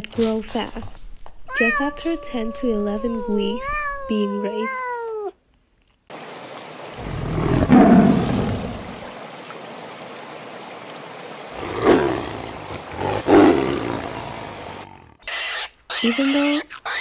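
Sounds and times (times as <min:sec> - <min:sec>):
tiger roaring: 0:07.0 - 0:09.0, 0:11.5 - 0:15.4.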